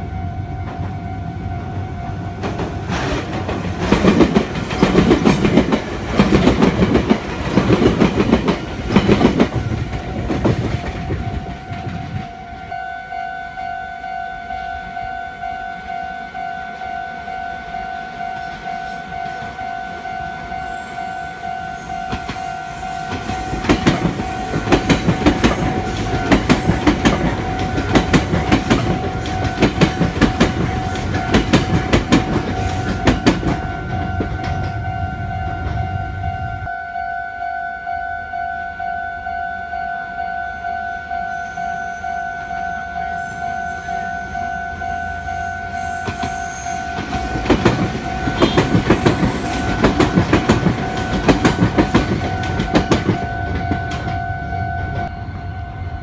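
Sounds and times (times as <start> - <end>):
train wheels clattering: 2.3 - 12.4, 22.0 - 34.8, 45.9 - 54.3.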